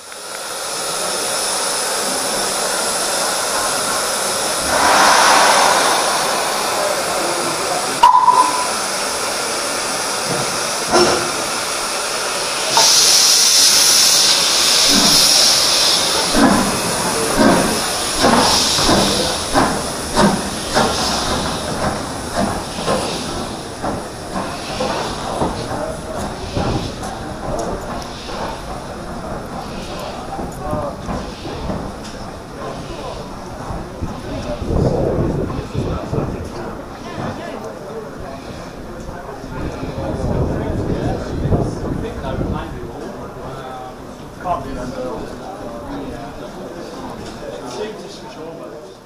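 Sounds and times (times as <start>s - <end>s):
steam locomotive hissing: 0.0s - 49.0s
steam whistle: 8.0s - 8.8s.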